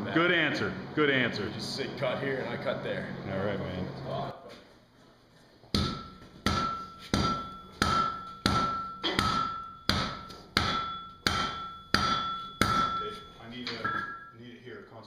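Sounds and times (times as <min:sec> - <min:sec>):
hammer striking steel on anvil: 0:05.7 - 0:14.3.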